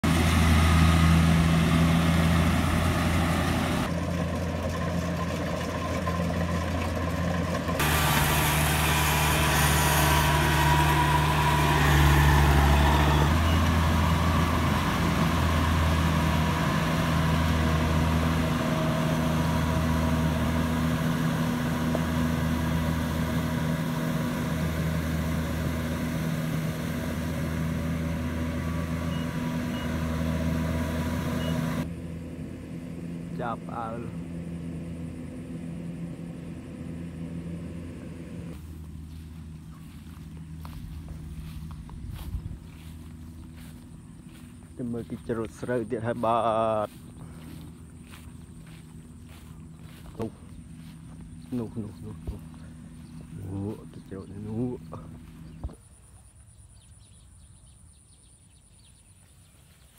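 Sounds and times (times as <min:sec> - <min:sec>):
combine harvester drone: 0:00.0 - 0:58.2.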